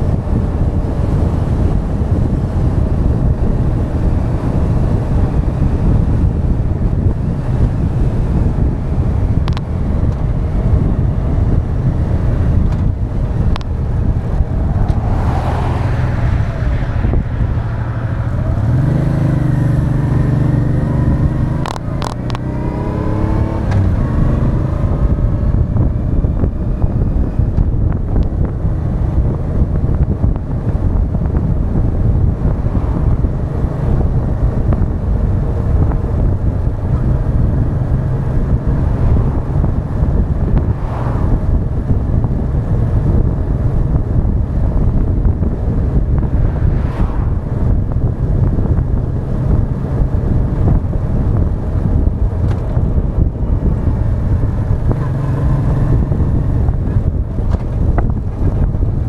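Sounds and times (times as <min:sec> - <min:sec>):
wind rushing on microphone: 0:00.0 - 0:59.0
motorcycle engine: 0:00.1 - 0:59.0.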